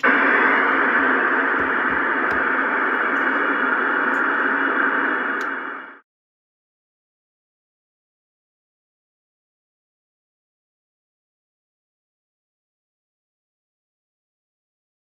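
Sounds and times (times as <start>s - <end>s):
radio static hiss: 0.0s - 6.0s.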